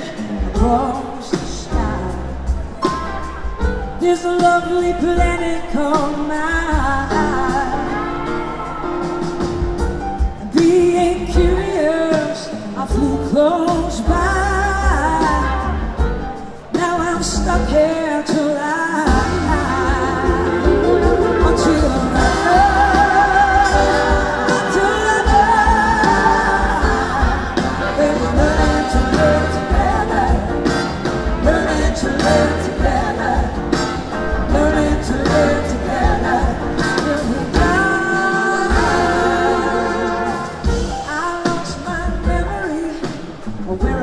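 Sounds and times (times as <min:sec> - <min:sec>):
bass guitar: 0:00.0 - 0:18.4, 0:19.0 - 0:44.0
drums: 0:00.0 - 0:44.0
woman singing with vibrato: 0:04.0 - 0:08.9, 0:10.4 - 0:16.0, 0:16.8 - 0:33.8, 0:34.4 - 0:44.0
backing singers: 0:18.9 - 0:44.0.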